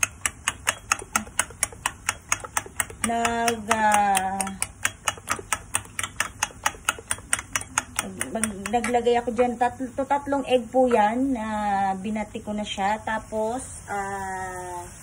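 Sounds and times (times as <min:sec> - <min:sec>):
fork beating eggs in a bowl: 0:00.0 - 0:10.1.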